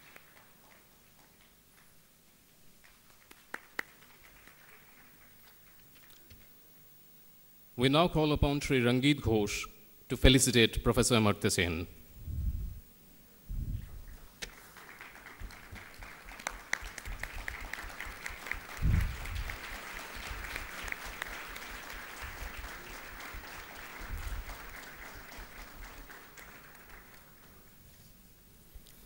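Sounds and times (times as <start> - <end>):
audience applauding: 0.0 - 2.0, 2.8 - 6.2, 14.1 - 27.8.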